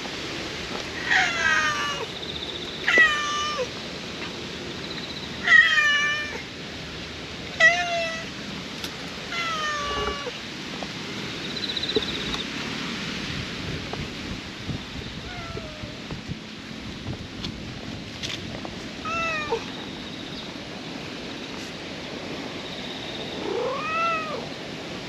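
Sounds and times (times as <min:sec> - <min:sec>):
cat meowing: 0:01.0 - 0:02.1, 0:02.8 - 0:03.7, 0:05.4 - 0:06.4, 0:07.6 - 0:08.3, 0:09.3 - 0:10.4, 0:15.2 - 0:16.0, 0:19.0 - 0:19.7, 0:23.4 - 0:24.5.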